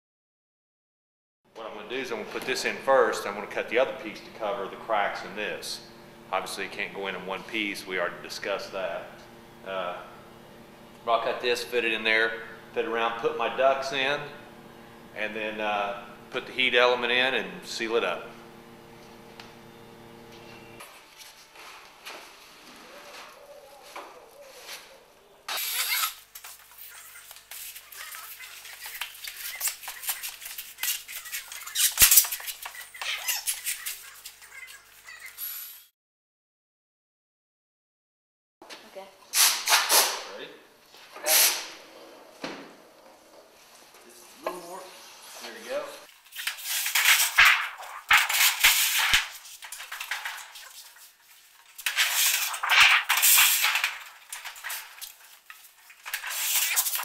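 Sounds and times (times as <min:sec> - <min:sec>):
metal sheet rattling and crinkling: 0:46.6 - 0:57.0.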